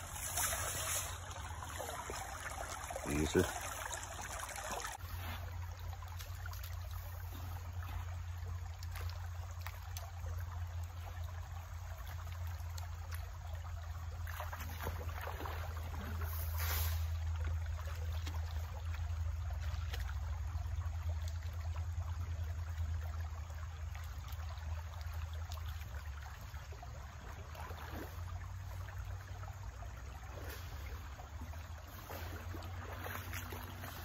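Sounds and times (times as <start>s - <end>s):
hands splashing in water: 0.0s - 5.0s
creek water trickling: 0.0s - 34.0s.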